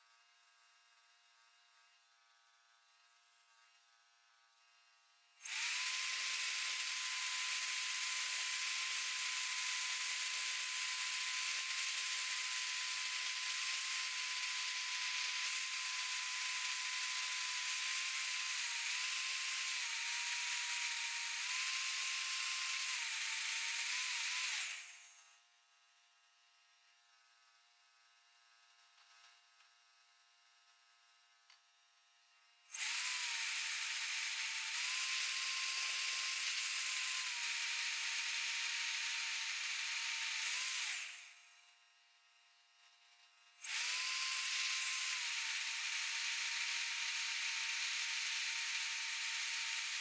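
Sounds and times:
drill press motor whining: 5.4s - 25.4s, 32.7s - 41.6s, 43.2s - 50.0s.

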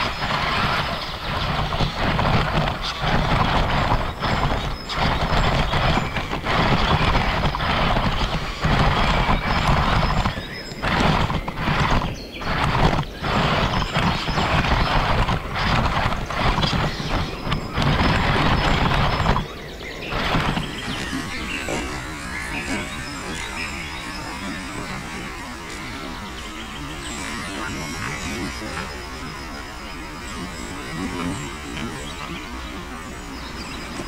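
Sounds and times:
rc truck electric motor: 0.0s - 34.0s
tyres over rough ground: 0.0s - 34.0s.

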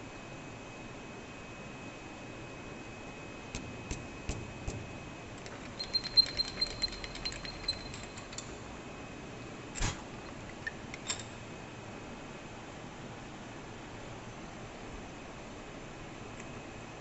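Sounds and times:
run of ringing ticks: 5.4s - 8.6s.

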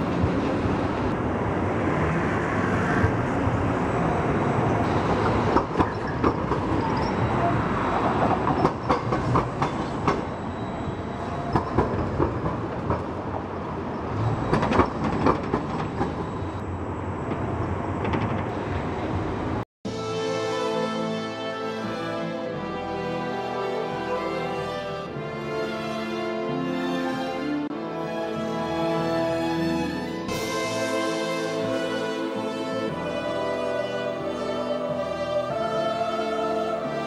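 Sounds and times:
city traffic noise: 0.0s - 37.0s
tram wheels clicking over points: 4.9s - 10.5s, 11.3s - 13.5s, 14.2s - 16.6s.

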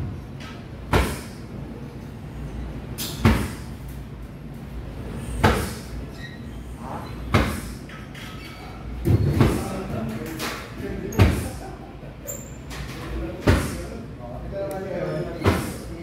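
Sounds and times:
kickboxing thuds with echo: 3.2s - 3.7s, 7.3s - 7.7s.

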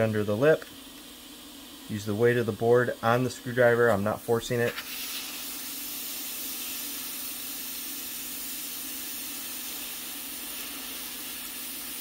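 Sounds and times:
hot air blower hissing: 0.0s - 12.0s.

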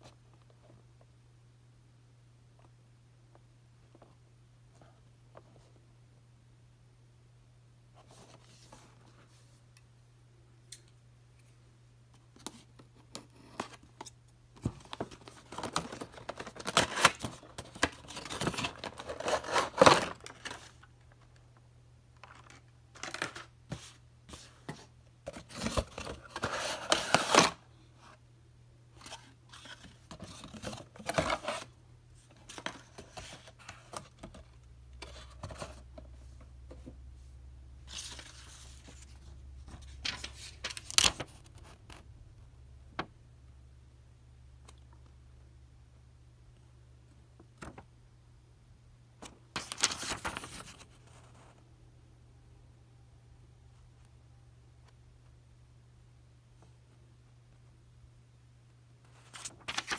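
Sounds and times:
packaging rustling and scraping: 14.7s - 20.9s.

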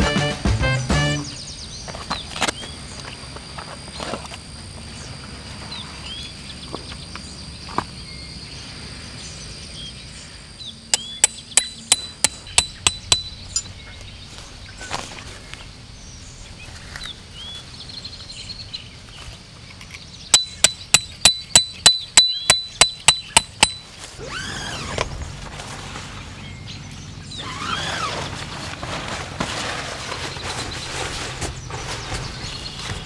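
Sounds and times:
hammer striking tent peg: 11.0s - 13.6s, 20.4s - 23.9s.

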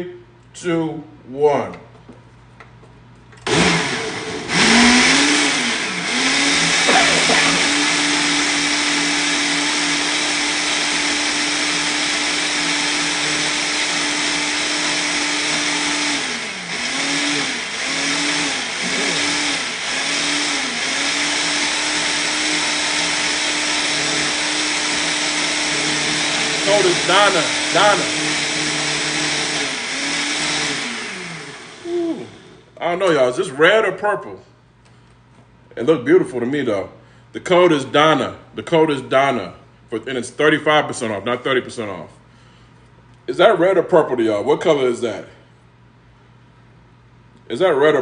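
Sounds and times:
blender motor running: 3.4s - 32.8s.

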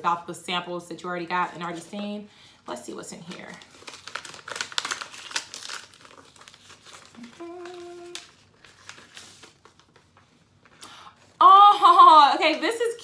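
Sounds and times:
paper crinkling and rustling: 3.1s - 10.8s
woman humming: 7.2s - 8.2s.

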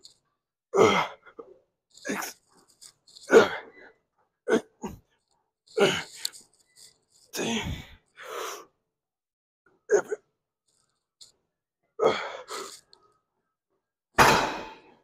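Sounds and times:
man breathing hard and grunting: 7.3s - 8.7s, 12.0s - 12.9s.

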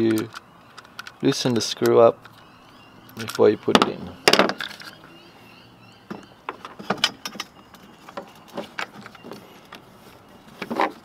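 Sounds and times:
plastic parts clicking and knocking: 3.2s - 5.0s.

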